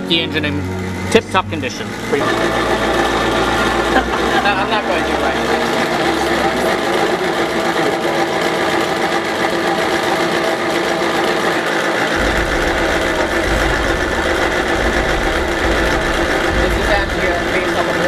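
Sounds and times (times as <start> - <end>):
electric blower motor whine: 0.0 - 18.0
low rumble: 12.2 - 18.0.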